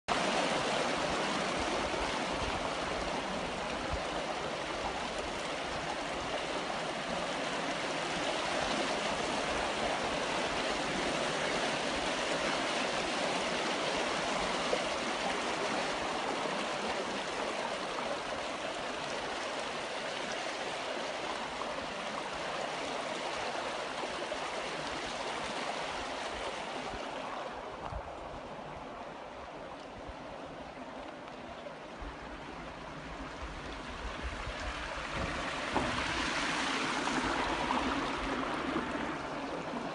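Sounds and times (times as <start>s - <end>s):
water rushing and splashing: 0.1s - 39.9s.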